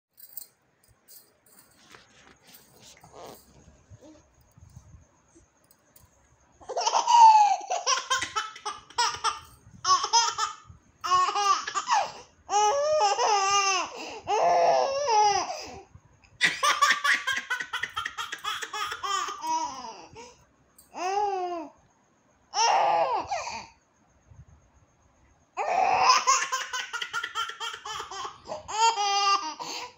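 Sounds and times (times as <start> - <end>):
baby giggling: 6.6 - 12.1.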